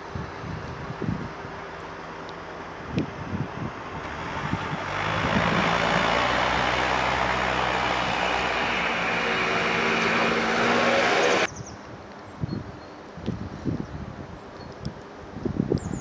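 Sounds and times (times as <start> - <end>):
road noise hiss: 0.0 - 12.4
vehicle engine running: 3.3 - 11.5.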